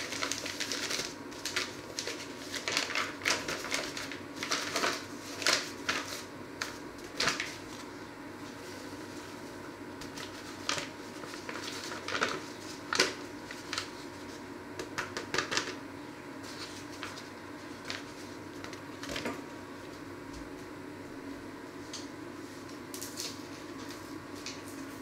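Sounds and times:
paper bag crinkling: 0.0 - 7.9, 10.0 - 14.4
steady background hum: 0.0 - 25.0.

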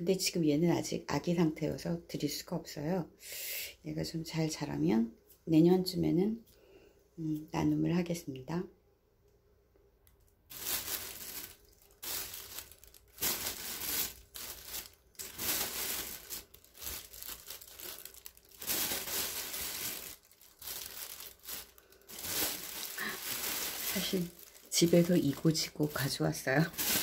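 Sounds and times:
soil rustling and crinkling: 10.5 - 27.0.

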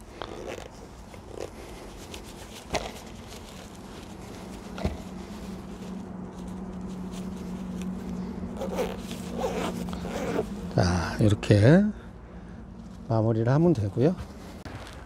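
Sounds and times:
fabric rustling: 0.0 - 10.8
steady low hum: 0.0 - 15.0.

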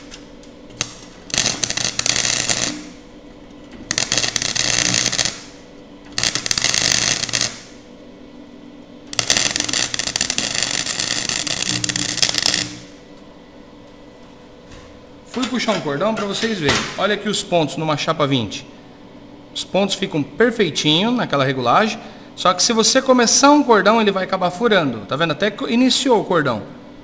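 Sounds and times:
welder arc crackling: 0.0 - 13.3.

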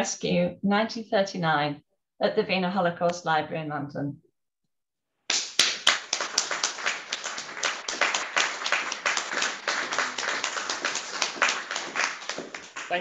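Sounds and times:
audience applauding: 5.3 - 13.0.

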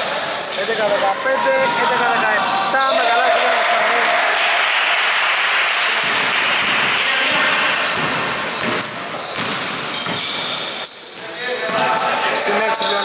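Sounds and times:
basketball bouncing on wooden court: 5.8 - 10.6.

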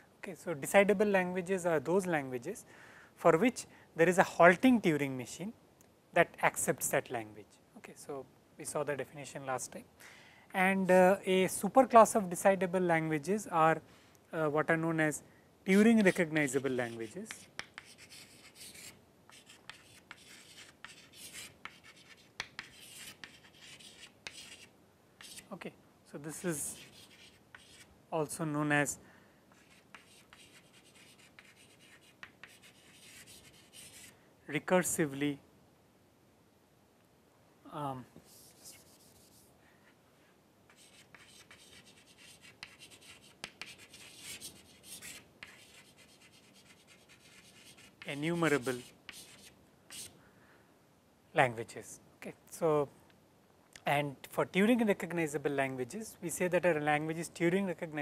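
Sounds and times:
chalk scratching on chalkboard: 15.8 - 25.5, 26.5 - 27.9, 29.6 - 34.1, 38.2 - 39.5, 40.7 - 50.1
chalk tapping on board: 16.9 - 25.4, 26.8 - 27.9, 29.6 - 34.1, 40.7 - 50.1.

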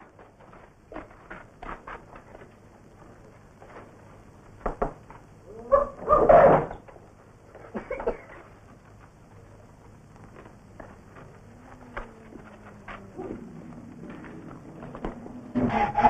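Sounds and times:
dog barking: 5.7 - 6.6.

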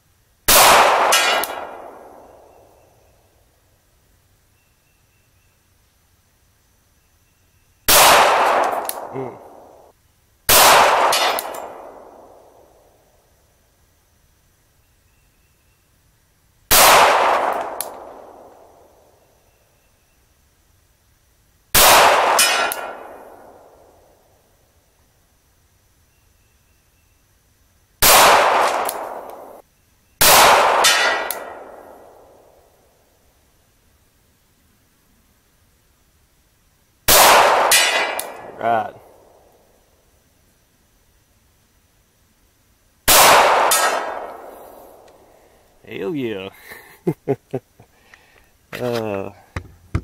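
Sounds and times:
gunshots with long echo: 0.5 - 2.6, 7.9 - 9.9, 10.5 - 12.8, 16.7 - 19.1, 21.7 - 24.1, 28.0 - 29.6, 30.2 - 32.8, 37.1 - 39.5, 43.1 - 45.1.

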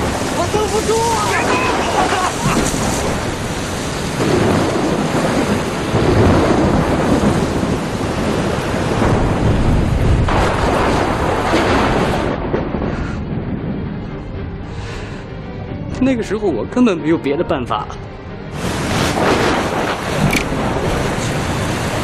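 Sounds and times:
heavy rain hissing: 0.0 - 13.6, 18.6 - 22.0
rolling thunder: 0.0 - 14.8, 18.5 - 22.0.

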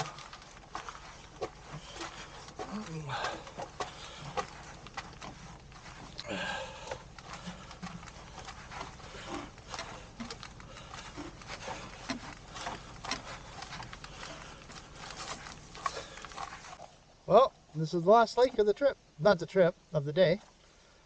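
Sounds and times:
footsteps on dirt trail: 0.0 - 16.9.

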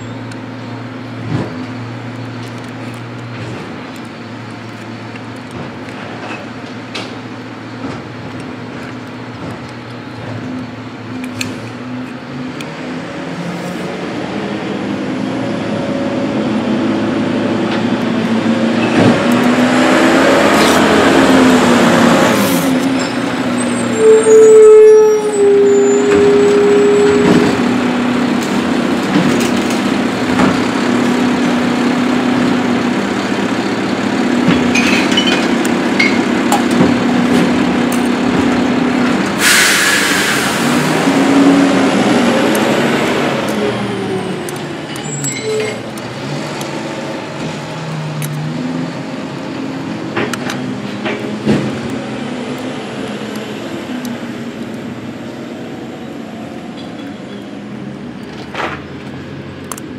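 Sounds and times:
motor vehicle running: 0.0 - 59.9
burst of hissing air: 39.4 - 40.9.

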